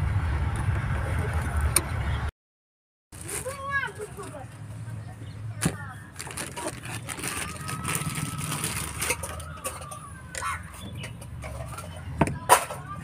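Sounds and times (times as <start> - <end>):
plastic bag crinkling: 3.2 - 4.2, 6.1 - 9.5
bird calls: 9.3 - 12.2.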